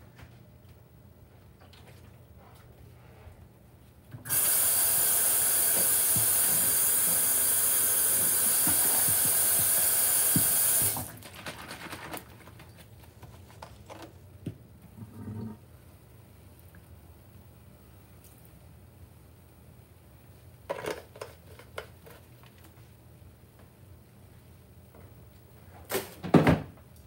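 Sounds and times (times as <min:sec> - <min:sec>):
tap running into a sink: 0:04.2 - 0:11.1.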